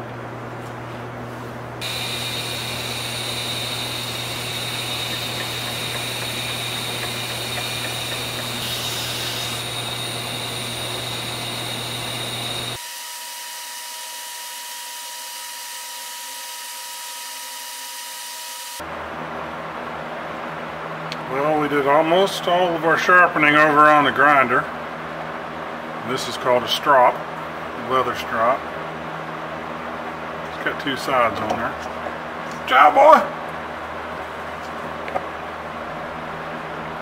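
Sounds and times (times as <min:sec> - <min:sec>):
faint steady whine: 0:01.6 - 0:12.8
knife grinding hiss and whine: 0:01.8 - 0:12.8
belt grinder motor hum: 0:01.8 - 0:18.8.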